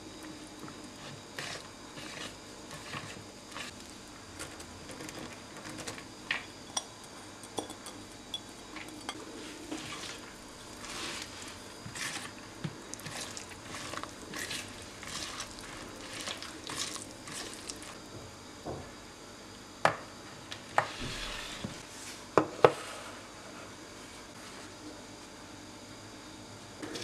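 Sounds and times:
whisk squishing wet mixture: 0:00.2 - 0:04.0, 0:08.8 - 0:18.2.

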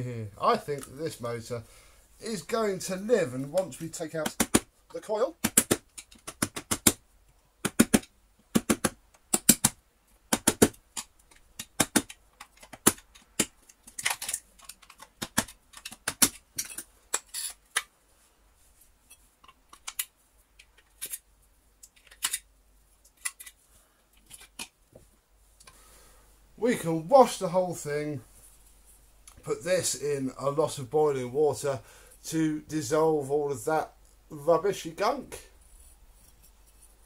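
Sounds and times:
screwdriver clicks and clatter: 0:11.0 - 0:17.9.

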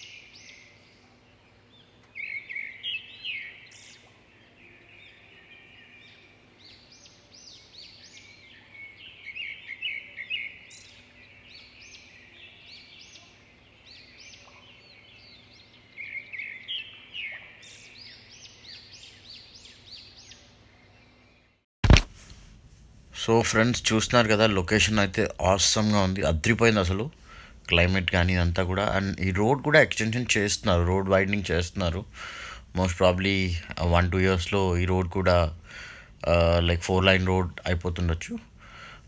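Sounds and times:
birds singing and chirping: 0:00.0 - 0:21.6, 0:24.2 - 0:38.9.

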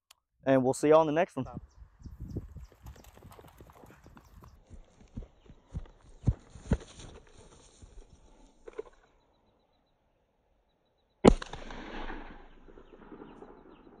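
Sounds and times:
faint rustling of gear: 0:02.4 - 0:09.4
handgun shot with echo: 0:11.2 - 0:14.0.

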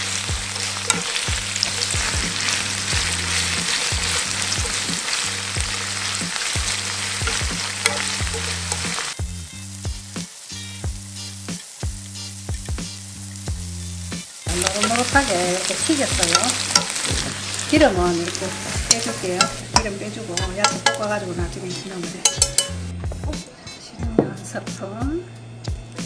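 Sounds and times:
chopsticks clicking against pan: 0:00.0 - 0:08.9, 0:16.1 - 0:17.3, 0:18.9 - 0:21.1, 0:22.2 - 0:22.8
food sizzling in oil: 0:00.0 - 0:23.3.

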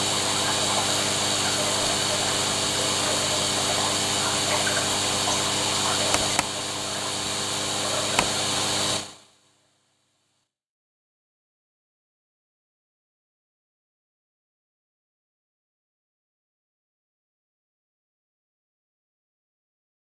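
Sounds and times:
water gurgling: 0:00.3 - 0:09.0
aquarium pump humming: 0:00.8 - 0:09.1
faint clicks: 0:06.1 - 0:06.6.

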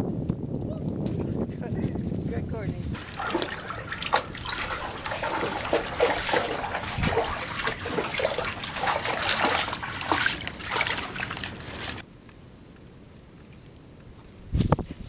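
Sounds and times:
dogs splashing through water: 0:03.0 - 0:12.0.

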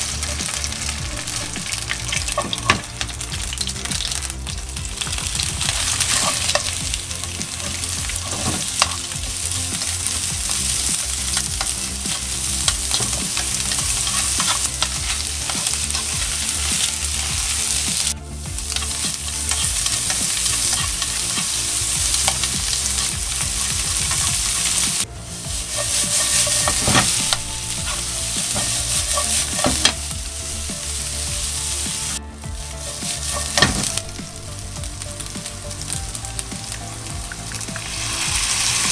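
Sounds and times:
meat and onion sizzling in a pan: 0:00.0 - 0:38.9.

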